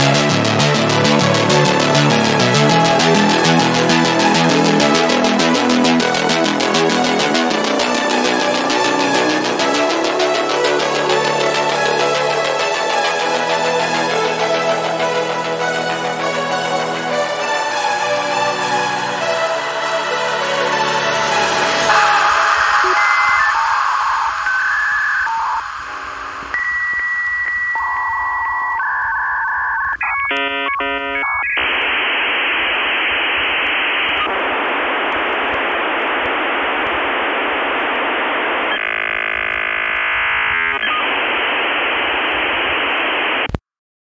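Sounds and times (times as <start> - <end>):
dial-up modem tones and static: 21.9 - 43.6.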